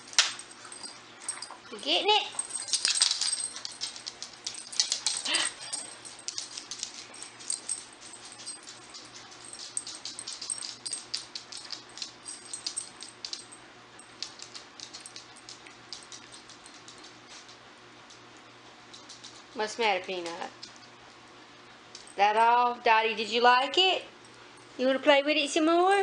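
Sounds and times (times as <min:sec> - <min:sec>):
dog whining: 0:05.2 - 0:06.0.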